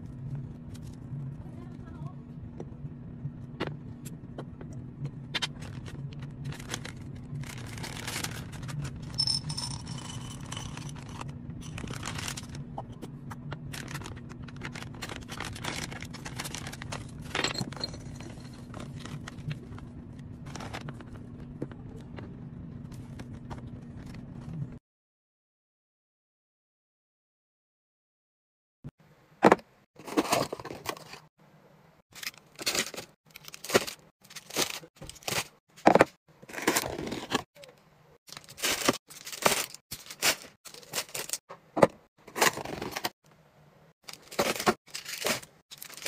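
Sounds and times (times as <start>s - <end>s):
steady low hum: 0.0s - 24.8s
plastic bags crinkling: 5.6s - 12.6s, 13.7s - 17.4s, 32.2s - 35.6s, 38.3s - 41.4s, 44.0s - 46.0s.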